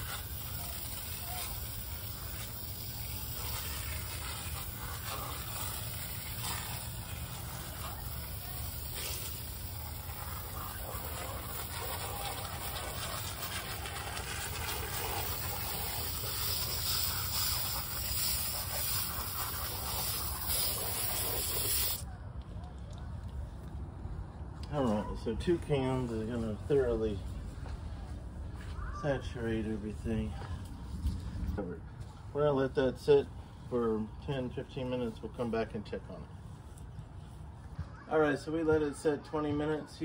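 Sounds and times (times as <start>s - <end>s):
aerosol can spraying hiss: 0.0s - 13.8s, 14.4s - 22.0s
low rumble: 30.5s - 32.3s.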